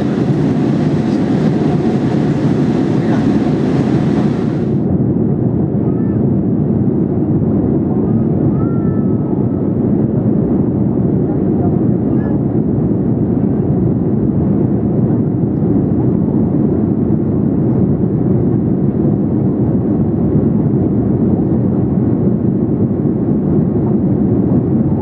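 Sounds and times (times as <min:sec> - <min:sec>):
airliner cabin noise: 0:00.0 - 0:05.0.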